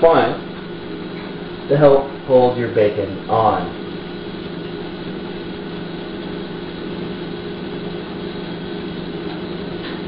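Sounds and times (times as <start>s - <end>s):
steady machine hum: 0.0s - 10.0s.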